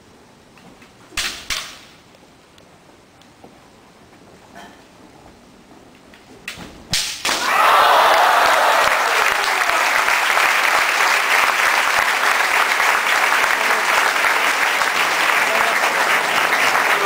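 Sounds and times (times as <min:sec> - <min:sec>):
spectators clapping: 0:07.3 - 0:17.0.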